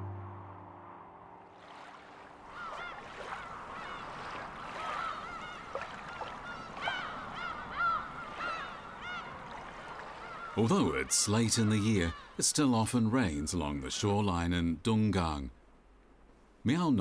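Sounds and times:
flock of birds calling: 0:02.5 - 0:12.4
faint steady hiss: 0:05.7 - 0:17.0.

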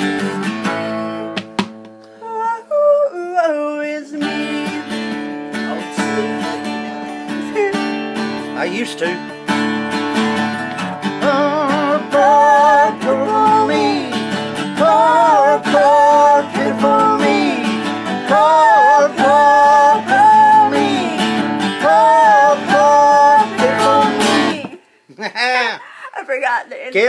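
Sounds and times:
acoustic guitar strumming: 0:00.0 - 0:02.6, 0:04.1 - 0:24.8
person humming a melody: 0:02.1 - 0:04.9, 0:07.3 - 0:07.9.

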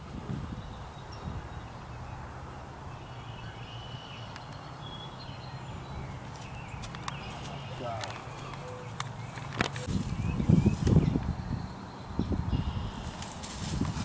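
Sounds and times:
wind rumble on microphone: 0:00.0 - 0:02.9, 0:09.5 - 0:14.0.

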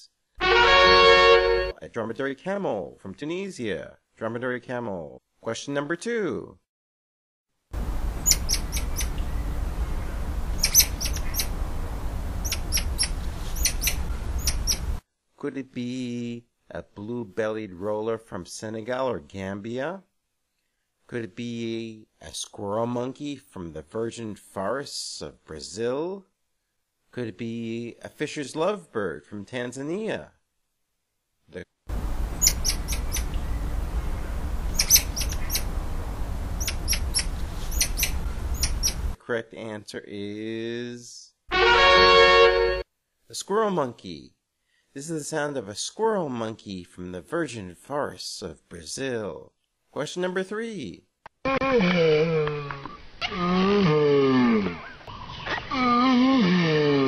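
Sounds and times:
low background rumble: 0:07.8 - 0:15.0, 0:31.9 - 0:39.2
monkey chirping peeps: 0:08.2 - 0:11.6, 0:12.4 - 0:15.0, 0:32.4 - 0:33.6, 0:34.6 - 0:35.7, 0:36.6 - 0:39.1.

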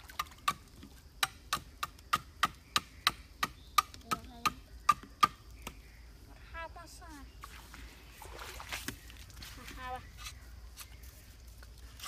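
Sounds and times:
knife chopping bamboo: 0:01.2 - 0:05.8.

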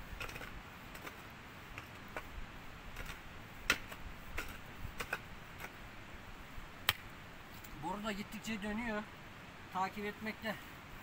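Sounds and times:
shovel scraping stony soil: 0:00.0 - 0:05.8.

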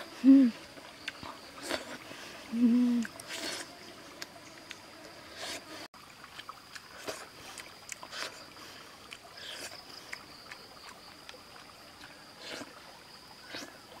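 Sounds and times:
person chewing and lip smacking: 0:06.4 - 0:08.4.

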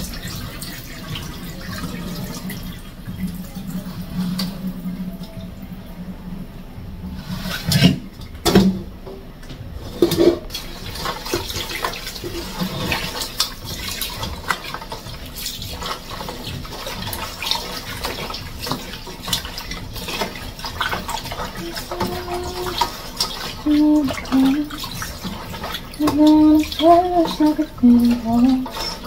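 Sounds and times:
water pouring into steel sink: 0:00.0 - 0:05.8, 0:10.0 - 0:29.0
metal bowl clanking on sink: 0:09.8 - 0:29.0.

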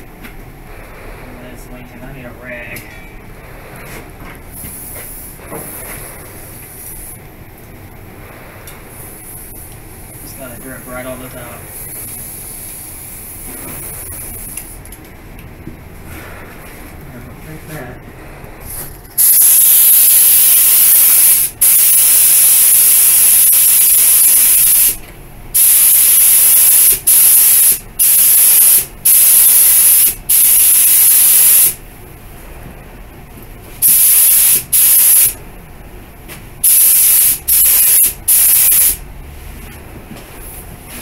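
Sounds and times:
paint spray gun hissing: 0:19.2 - 0:25.0, 0:33.8 - 0:35.4, 0:36.6 - 0:39.0.

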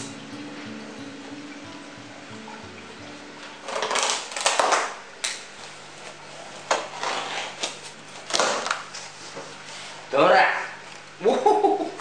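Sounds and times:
plastic straps snapping: 0:03.7 - 0:05.5, 0:06.7 - 0:08.9
plastic straps scraping cardboard: 0:06.7 - 0:09.1.

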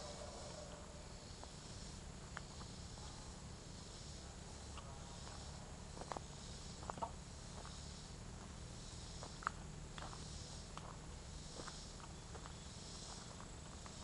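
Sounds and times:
faint high hiss: 0:00.0 - 0:14.0
footsteps on leafy dirt trail: 0:09.2 - 0:14.0.

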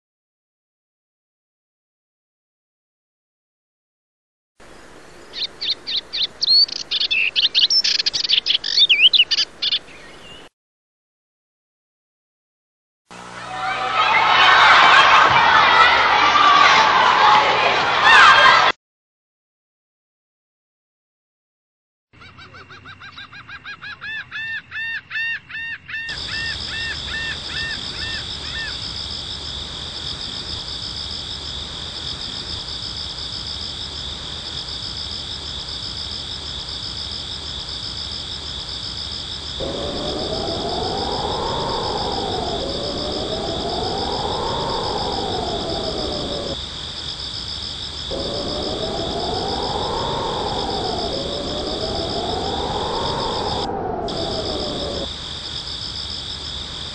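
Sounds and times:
high electronic hiss: 0:39.5 - 0:47.0, 0:47.9 - 0:55.2
low hum: 0:39.6 - 0:46.6, 0:48.1 - 0:55.1.

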